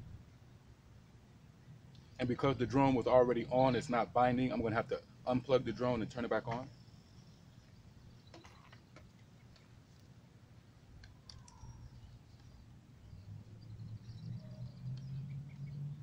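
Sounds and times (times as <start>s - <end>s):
faint high chirps: 6.6s - 8.8s, 11.0s - 16.0s.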